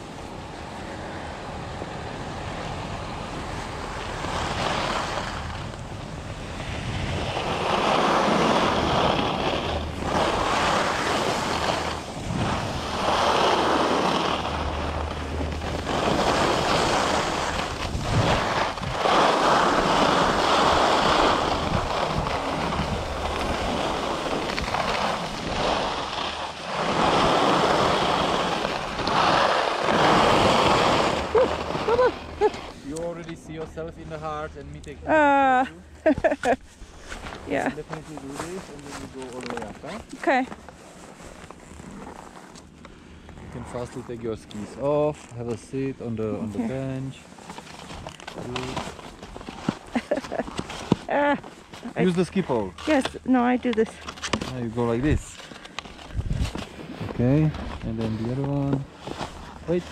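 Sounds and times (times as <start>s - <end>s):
skis scraping over snow: 0.9s - 35.3s, 36.1s - 42.6s, 43.4s - 59.9s
wind noise on microphone: 1.6s - 26.2s, 56.0s - 57.9s.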